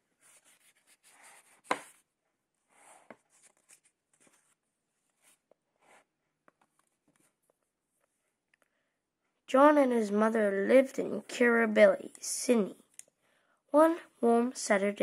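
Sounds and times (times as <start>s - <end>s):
book handling sounds: 0.2s - 2.0s, 2.8s - 8.2s
paper pages turning: 2.8s - 5.4s.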